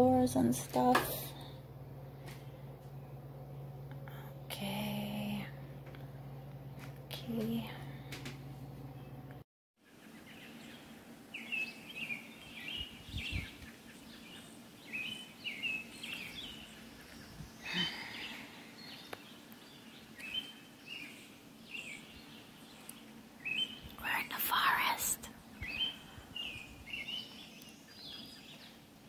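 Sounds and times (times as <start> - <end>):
songbird chirping: 8.9 - 29.0
faint outdoor background noise: 9.3 - 29.0.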